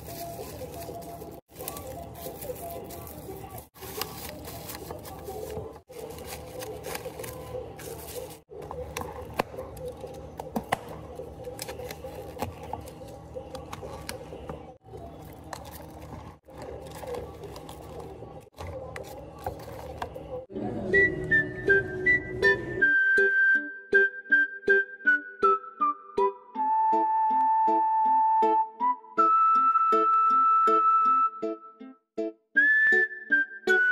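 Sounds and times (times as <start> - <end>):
plastic cups and lids clicking: 0.4 - 20.4.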